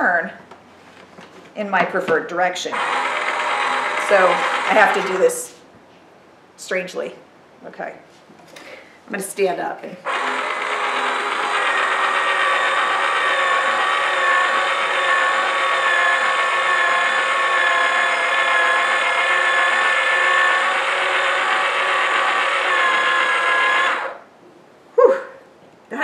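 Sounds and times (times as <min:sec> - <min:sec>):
small electric motor whining: 0:02.7 - 0:05.5, 0:10.0 - 0:24.2.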